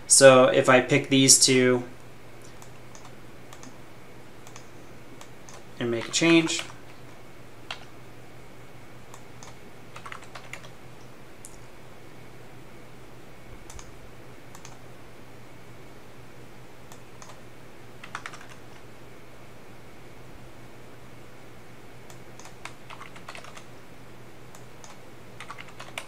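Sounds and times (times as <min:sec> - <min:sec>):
steady low hum: 0:00.0 - 0:26.0
keyboard keys tapping: 0:09.4 - 0:10.7, 0:18.0 - 0:18.6, 0:22.4 - 0:23.7, 0:24.6 - 0:26.0.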